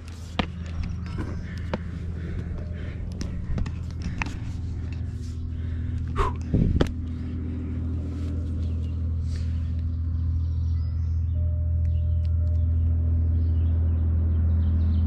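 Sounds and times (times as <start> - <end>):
knocks and scuffs: 0.0 - 4.6
distant boat engine drone: 0.0 - 15.0.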